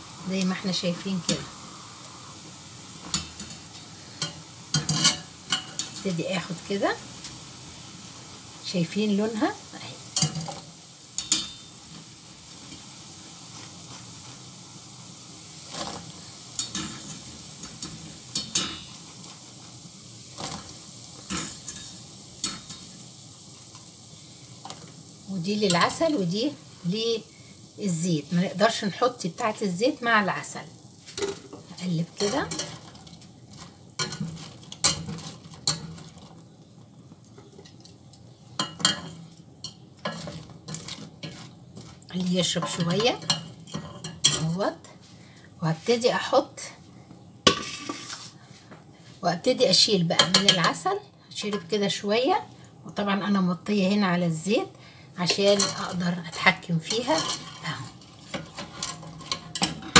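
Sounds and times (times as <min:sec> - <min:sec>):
hot oil sizzling: 0:00.0 - 0:59.9
metal clinking on pot: 0:03.0 - 0:06.0, 0:11.2 - 0:11.7, 0:38.6 - 0:41.4, 0:56.9 - 0:59.9.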